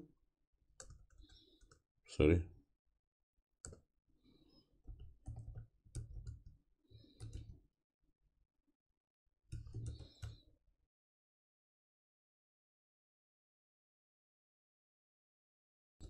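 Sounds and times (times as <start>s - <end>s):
keyboard typing: 9.6s - 10.4s.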